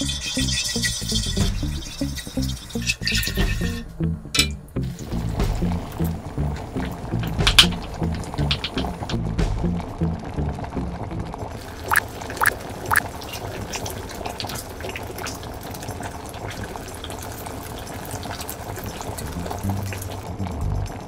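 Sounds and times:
sauce bubbling in pan: 0.0s - 4.2s, 4.8s - 21.0s
small pops: 6.0s - 9.2s.

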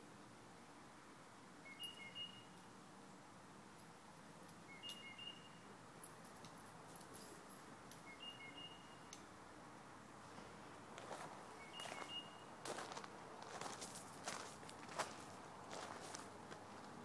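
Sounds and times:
songbird whistling: 1.6s - 2.6s, 4.7s - 5.6s, 8.0s - 9.2s, 11.6s - 12.5s.

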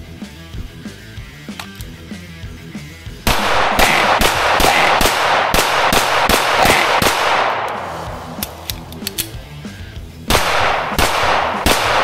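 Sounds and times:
rock music with distorted guitar: 0.0s - 12.0s
pistol shots: 3.3s - 9.1s, 10.3s - 12.0s.

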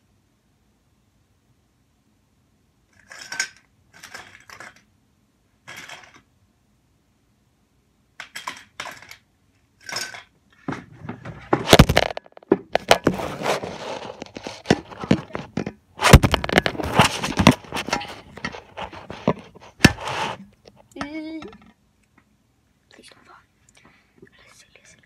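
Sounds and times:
phone handling knocks and rubbing: 10.6s - 20.4s.

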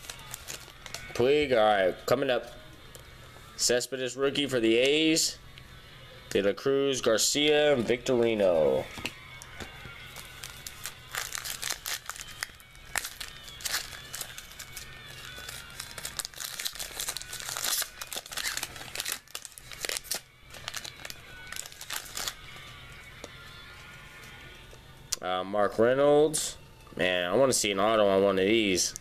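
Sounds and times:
foil wrapper crinkling and tearing: 0.0s - 1.2s, 10.1s - 23.4s.

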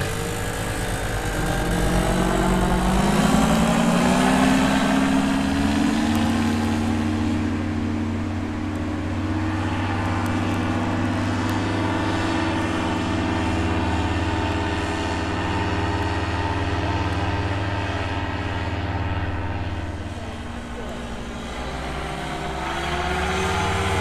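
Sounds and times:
paramotor engine and propeller: 0.0s - 24.0s.

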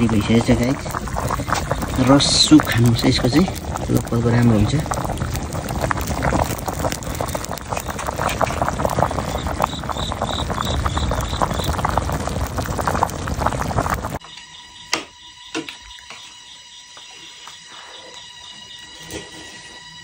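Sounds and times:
food bubbling and crackling: 0.0s - 14.3s.

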